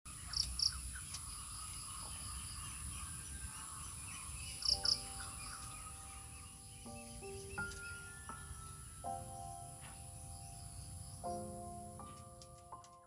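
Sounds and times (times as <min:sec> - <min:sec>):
insects droning: 0:00.1 - 0:12.4
birds chirping: 0:00.1 - 0:13.0
soft music with held notes: 0:03.9 - 0:13.0.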